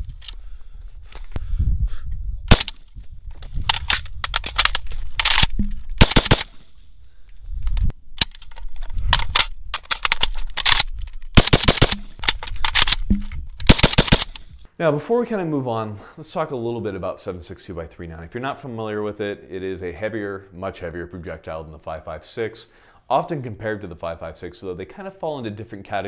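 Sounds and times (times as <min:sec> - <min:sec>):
rifle gunshots: 0:02.5 - 0:02.8, 0:05.2 - 0:06.7, 0:11.4 - 0:13.0, 0:13.7 - 0:14.5.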